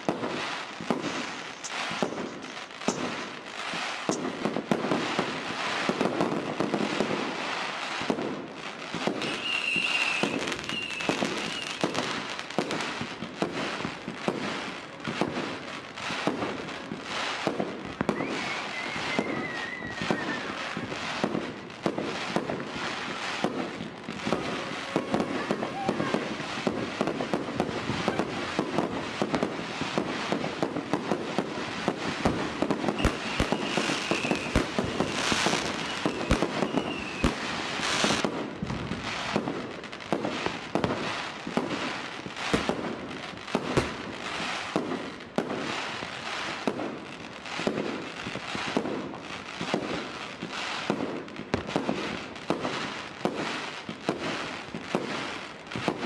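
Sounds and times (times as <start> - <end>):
firecrackers bangs and crackling: 0.0 - 56.0
whistling rockets: 8.9 - 12.9, 17.0 - 21.4, 31.8 - 39.4.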